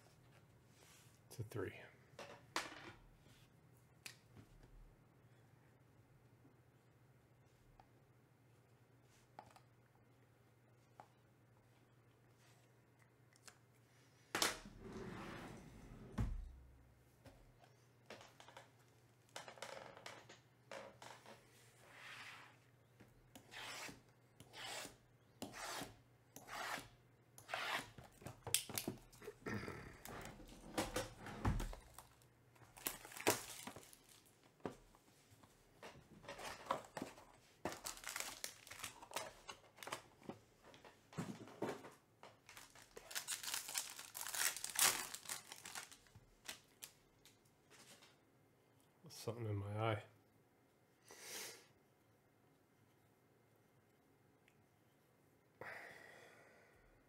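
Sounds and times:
plastic wrap ripping: 0:31.8 - 0:34.3, 0:37.7 - 0:39.3, 0:42.4 - 0:46.9.

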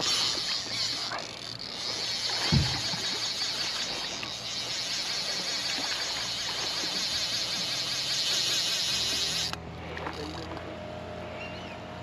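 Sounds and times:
insects chirring: 0:00.0 - 0:09.6.

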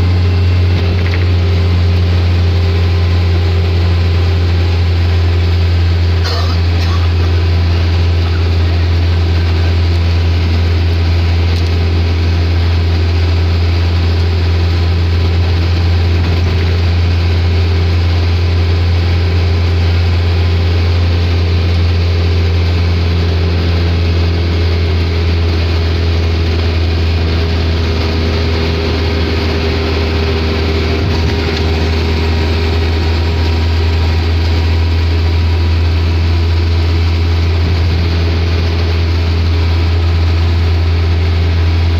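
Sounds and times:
engine and road drone: 0:00.0 - 0:41.9.

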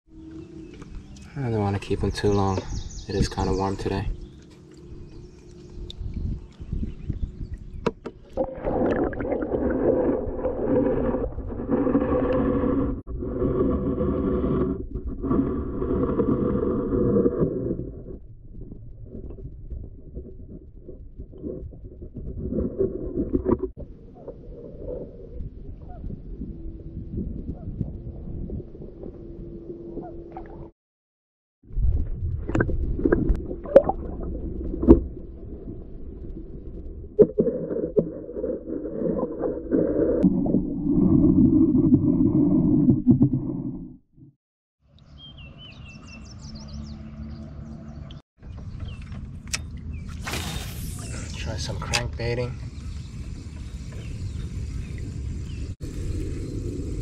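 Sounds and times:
muffled underwater sloshing: 0:00.2 - 0:30.7.

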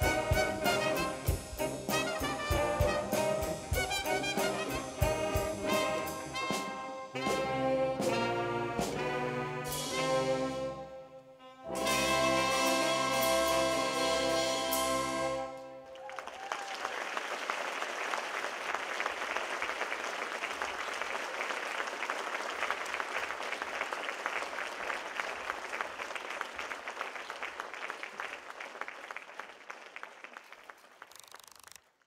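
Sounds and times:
audience applauding: 0:15.6 - 0:31.8.

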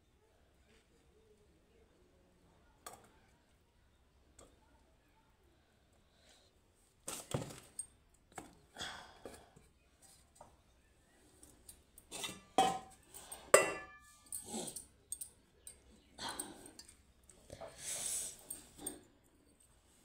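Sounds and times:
metal utensils clinking: 0:11.6 - 0:17.0.

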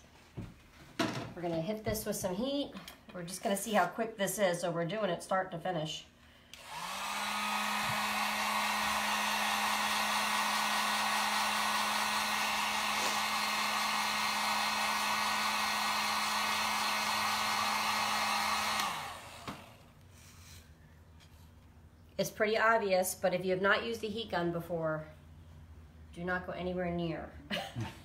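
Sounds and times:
heat gun blowing whir: 0:06.5 - 0:19.9.

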